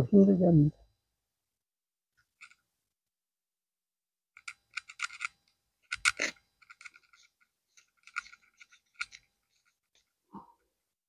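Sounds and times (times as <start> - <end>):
knife clicks and scrapes: 4.4 - 10.1.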